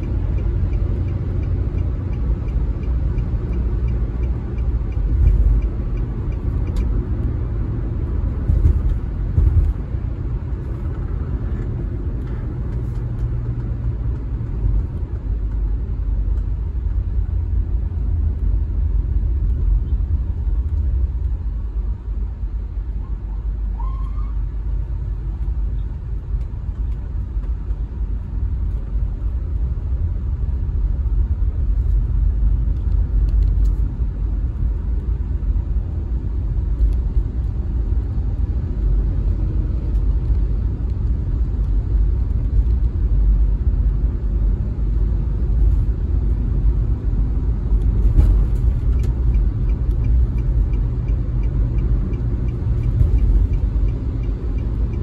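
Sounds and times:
faint regular ticking: 0.0 - 7.4, 48.8 - 55.0
car engine and tyre rumble: 0.0 - 55.0.

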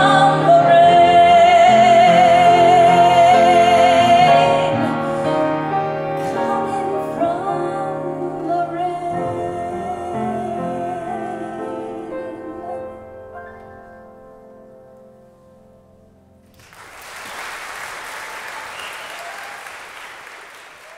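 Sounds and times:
woman singing ballad: 0.0 - 5.5, 6.2 - 13.0
grand piano: 0.0 - 20.9.

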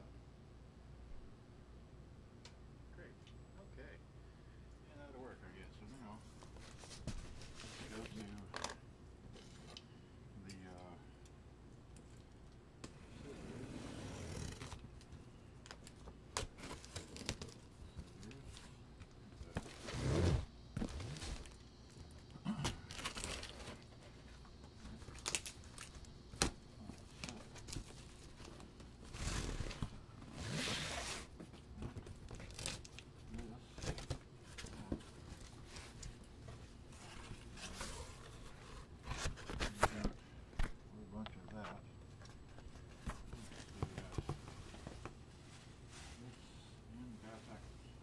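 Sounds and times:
tape and cardboard crinkling: 14.1 - 40.8.

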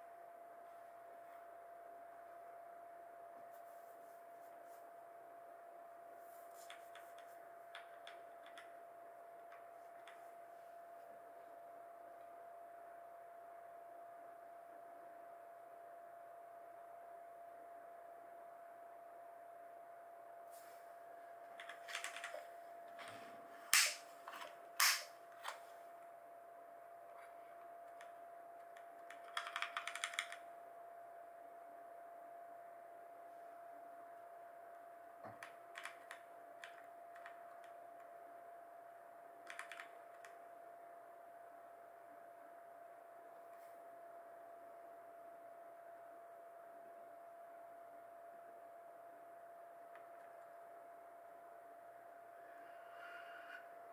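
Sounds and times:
faint steady tone: 0.0 - 53.9
mechanical keyboard clicks: 21.6 - 22.3, 29.1 - 30.4, 35.4 - 37.4, 39.4 - 40.3.

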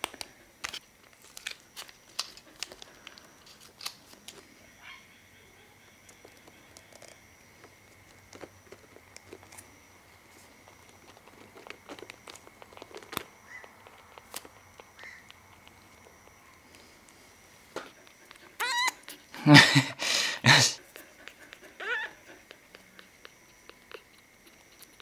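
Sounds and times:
plastic handling clicks and rustles: 0.0 - 4.4
kitten squeaks: 13.4 - 15.3, 18.6 - 19.2, 21.5 - 24.2.

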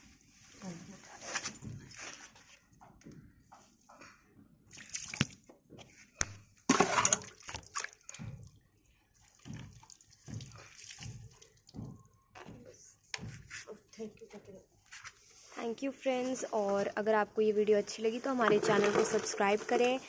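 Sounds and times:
water pouring onto soil: 9.2 - 11.8.

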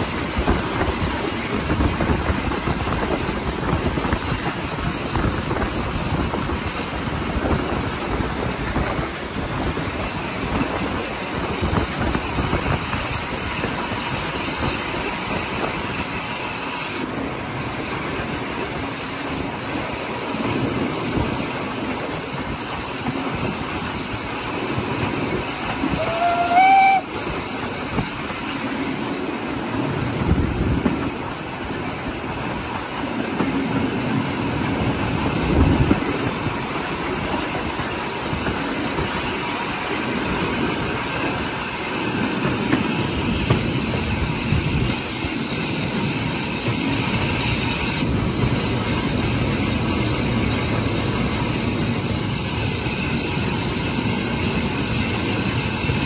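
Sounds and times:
steam hissing: 0.0 - 56.0
steam locomotive exhaust rumble: 0.0 - 56.0
wheels on rails: 0.0 - 56.0
steam whistle blast: 25.9 - 27.2.

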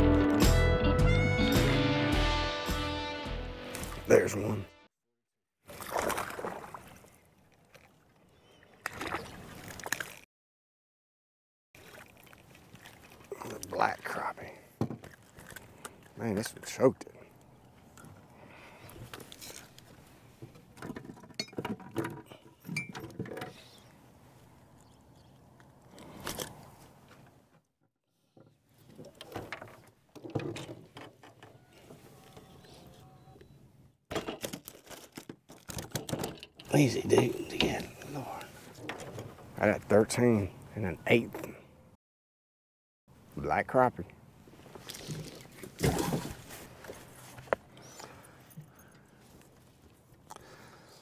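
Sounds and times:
fish splashing in water: 5.7 - 7.1
handling knocks and rattles: 20.4 - 23.6, 28.4 - 31.6, 34.1 - 39.6.

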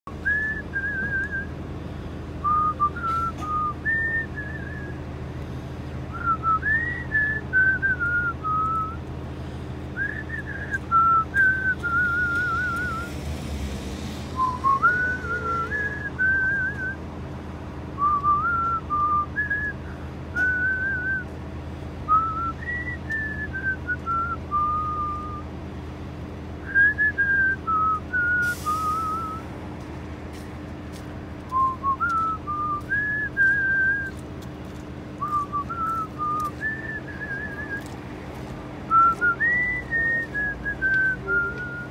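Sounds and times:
person whistling a tune: 0.2 - 1.5, 2.4 - 5.0, 6.1 - 9.0, 10.0 - 13.1, 14.4 - 17.0, 18.0 - 19.8, 20.4 - 21.3, 22.1 - 25.5, 26.6 - 29.5, 31.5 - 34.2, 35.2 - 38.0, 38.9 - 41.9.

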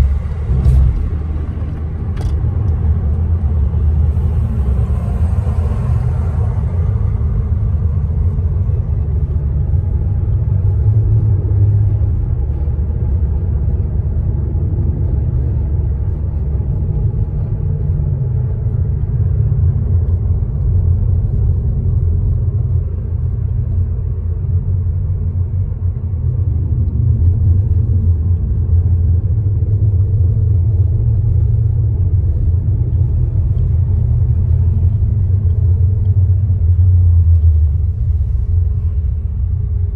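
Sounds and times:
car interior engine and tyre rumble: 0.0 - 39.9.

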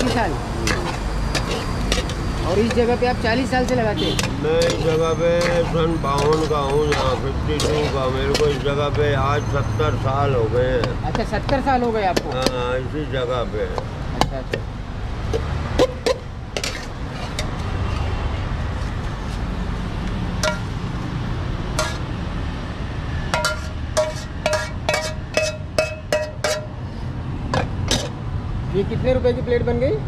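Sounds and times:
metal spatula scraping frying pan: 0.0 - 8.8, 15.8 - 18.2, 20.4 - 20.8, 21.8 - 22.1, 23.3 - 26.8, 27.6 - 28.2.

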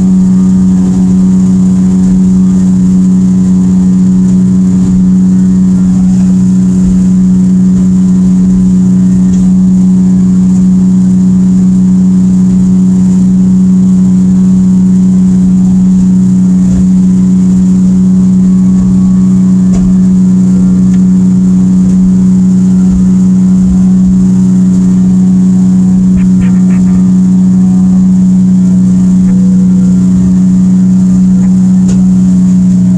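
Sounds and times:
outboard motor running: 0.0 - 32.9.

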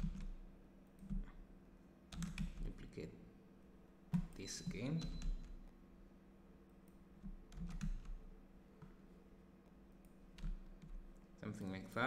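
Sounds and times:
keyboard and mouse clicks: 0.0 - 0.4, 1.0 - 1.4, 2.1 - 2.8, 4.1 - 5.7, 6.8 - 8.2, 10.0 - 11.2
faint low hum: 0.0 - 12.0.

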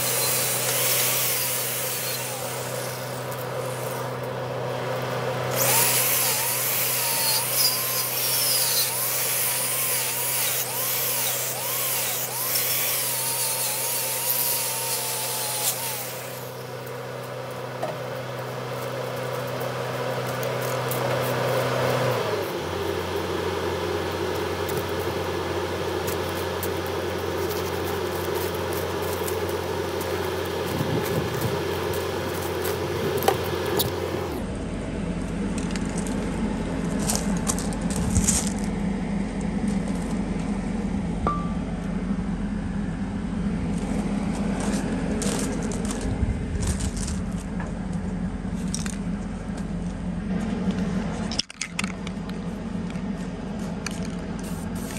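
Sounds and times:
wire brush grinder whining on metal: 0.0 - 34.5
steady low hum: 22.4 - 54.9.

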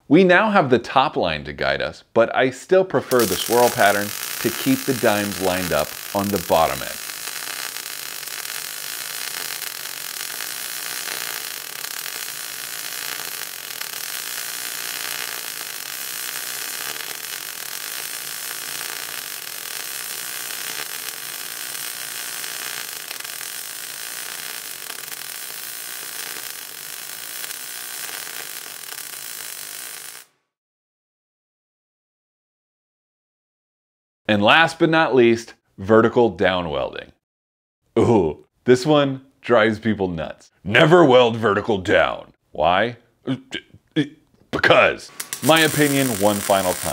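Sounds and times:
welding arc crackling: 3.1 - 30.3, 45.1 - 46.9.

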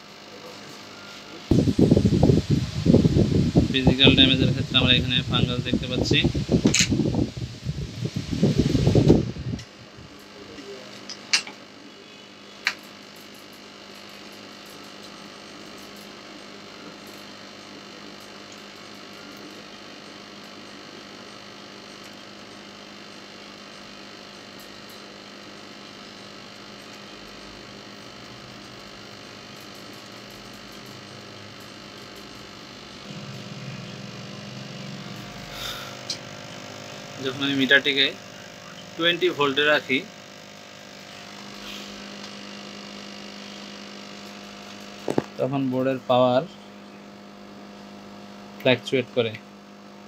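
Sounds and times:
steady electrical hum: 0.0 - 50.0
louder low hum: 0.4 - 12.6, 26.0 - 48.2.

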